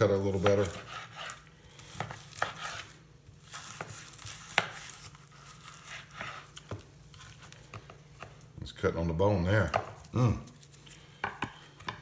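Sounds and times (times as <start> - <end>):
knife slicing ribs: 0.2 - 7.6.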